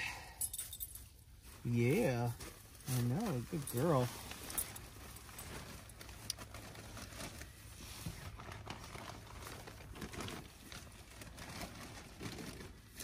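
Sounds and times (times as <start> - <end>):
fabric crinkling rustles: 0.4 - 13.0.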